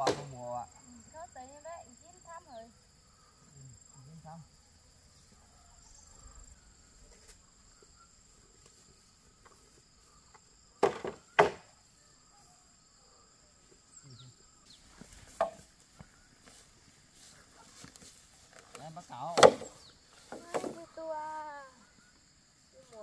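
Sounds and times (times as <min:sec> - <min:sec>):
sharp wooden knocks: 0:00.0 - 0:00.3, 0:10.8 - 0:11.7, 0:19.3 - 0:20.8
insects droning: 0:00.0 - 0:23.0.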